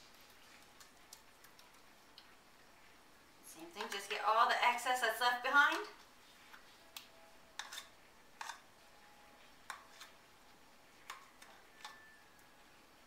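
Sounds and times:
spoon scraping a cup: 0:07.6 - 0:08.6, 0:09.7 - 0:10.2.

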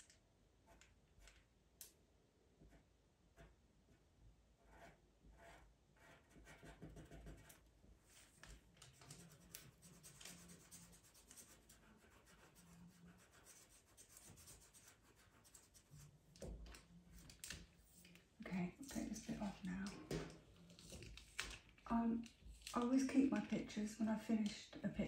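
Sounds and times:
pencil scratching on paper: 0:04.6 - 0:16.2.

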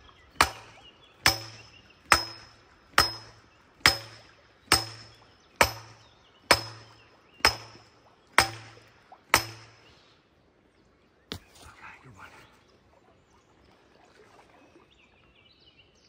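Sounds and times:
sledgehammer clanging on steel tube: 0:01.3 - 0:07.8, 0:08.4 - 0:08.8, 0:09.4 - 0:09.8.

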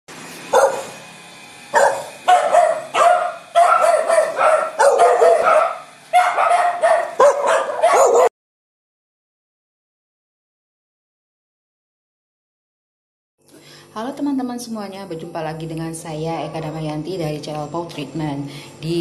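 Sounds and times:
dogs barking: 0:00.4 - 0:01.0, 0:01.7 - 0:08.3.

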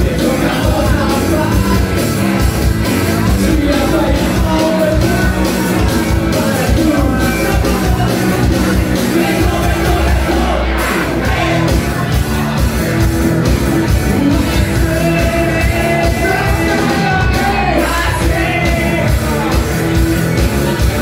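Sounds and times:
person singing: 0:00.0 - 0:02.0, 0:03.0 - 0:11.8, 0:14.0 - 0:19.7
live rock band playing: 0:00.0 - 0:21.0.

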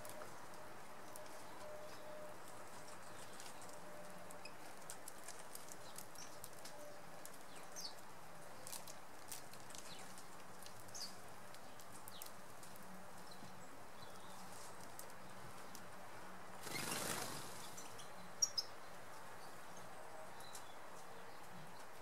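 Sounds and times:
birds pecking seeds clicks: 0:02.8 - 0:13.4.

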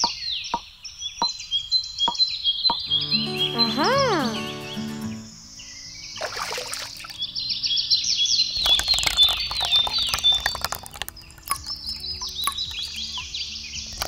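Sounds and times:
small birds chirping: 0:00.0 - 0:14.0
water trickling onto sand: 0:08.6 - 0:14.0.

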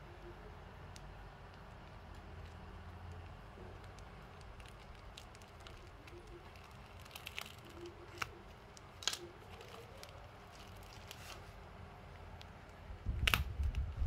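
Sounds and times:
short crackles and clicks: 0:00.9 - 0:11.4, 0:12.2 - 0:13.8
plastic bag rustling and crinkling: 0:01.5 - 0:11.6.

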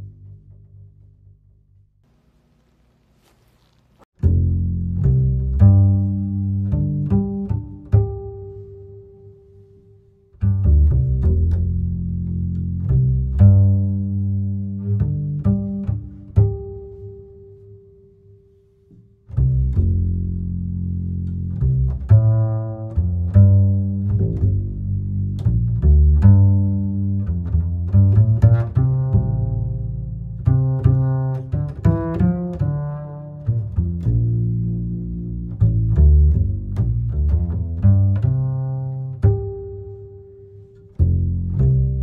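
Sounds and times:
low bass line: 0:00.0 - 0:02.0, 0:04.2 - 0:18.5, 0:19.2 - 0:42.0
plucked notes: 0:04.2 - 0:42.0.

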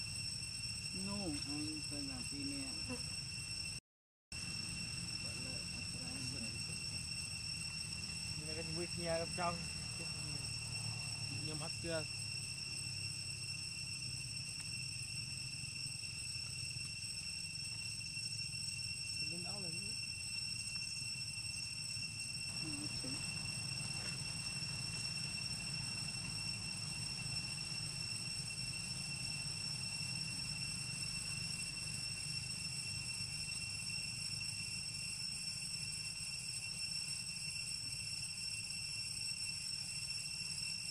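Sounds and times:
high-pitched insect drone: 0:00.0 - 0:40.9
low hum: 0:18.7 - 0:33.0.

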